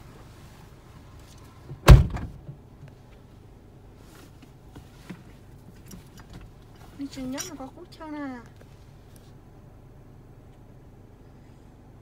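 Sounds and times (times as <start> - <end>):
vehicle door shutting: 1.7 - 2.6.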